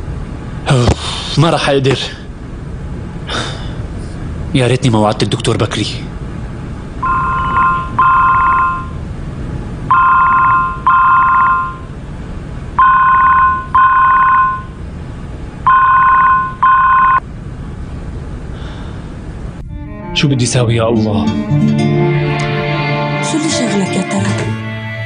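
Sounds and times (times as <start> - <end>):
phone ringing: 7.0 - 9.0, 9.9 - 11.8, 12.8 - 14.7, 15.7 - 17.2.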